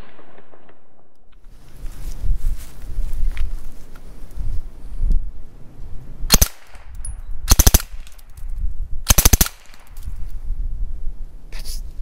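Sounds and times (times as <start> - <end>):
silenced submachine gun bursts: 6.3 - 8.4, 9.1 - 10.1.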